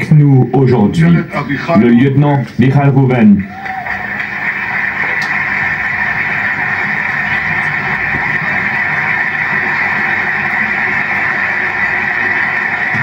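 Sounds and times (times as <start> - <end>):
audience applause on television: 3.2 - 13.0.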